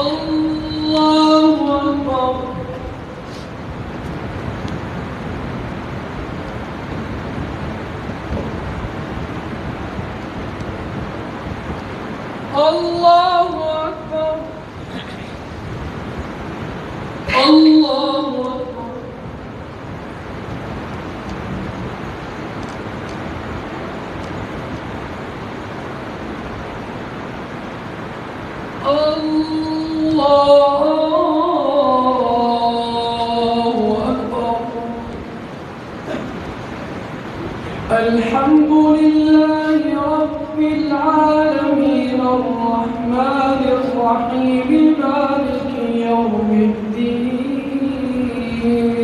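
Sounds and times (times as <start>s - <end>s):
low rumbling background noise: 0.0s - 49.0s
room noise hiss: 0.0s - 49.0s.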